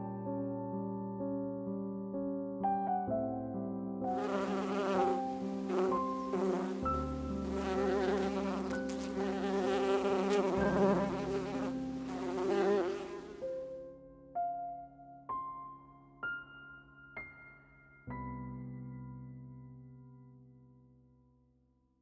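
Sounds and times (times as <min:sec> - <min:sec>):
soft piano music: 0:00.0 - 0:21.6
bees buzzing: 0:04.2 - 0:13.5.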